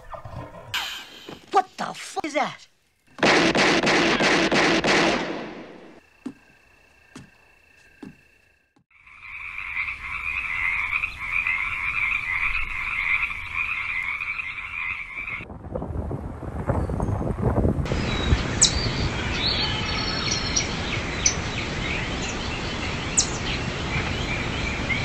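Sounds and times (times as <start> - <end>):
night chorus of calling animals: 5.7 - 15.5, 18.0 - 25.0
soft knocks: 6.2 - 6.5.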